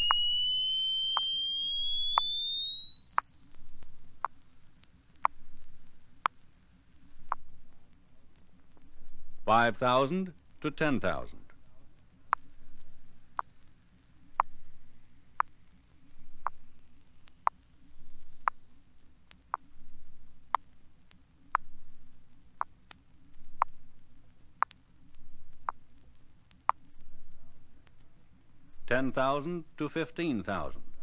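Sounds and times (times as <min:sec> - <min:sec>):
sine tone sweep: 0:00.0 - 0:07.4, 0:12.3 - 0:26.8
soft ticks: 0:00.0 - 0:08.9, 0:11.5 - 0:27.0, 0:27.8 - 0:28.1.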